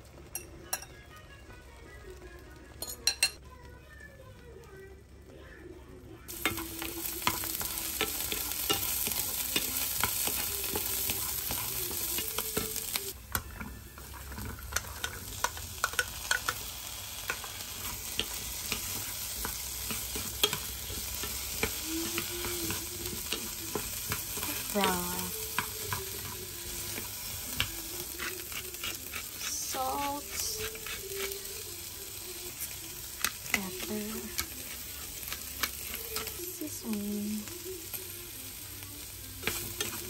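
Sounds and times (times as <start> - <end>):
food sizzling in a pan: 0.0 - 40.0
spatula tapping a pan: 6.3 - 29.3.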